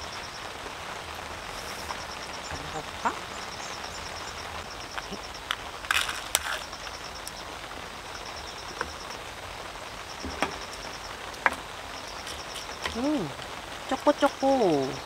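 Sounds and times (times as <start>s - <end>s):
rain hissing: 0.0s - 15.0s
plastic cup crackling and rustling: 4.9s - 6.8s.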